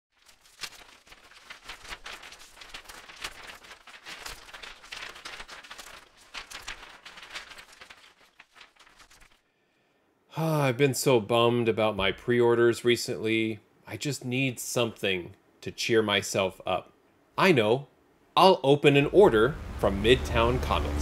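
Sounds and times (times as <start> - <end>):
crackly hiss: 0.1 - 9.4.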